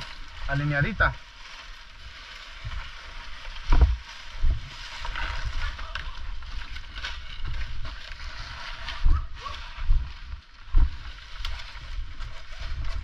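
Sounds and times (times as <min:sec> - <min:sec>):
dry palm fronds rustling: 0:00.0 - 0:13.0
thumps on microphone: 0:03.7 - 0:04.0.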